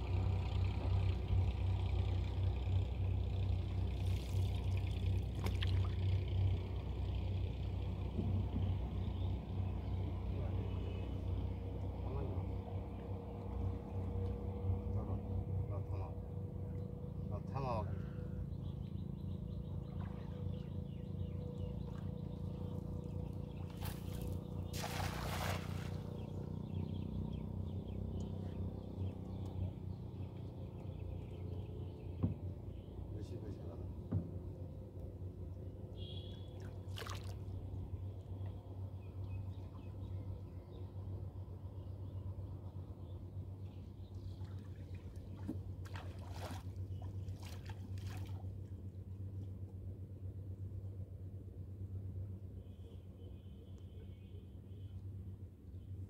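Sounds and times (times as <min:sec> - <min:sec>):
steady low hum: 0:00.0 - 0:56.0
river water splashing against boat: 0:03.2 - 0:09.3, 0:19.6 - 0:30.7, 0:35.6 - 0:40.4, 0:43.5 - 0:49.8
cast net splashing on water: 0:23.7 - 0:26.2, 0:36.6 - 0:37.4, 0:45.4 - 0:48.5.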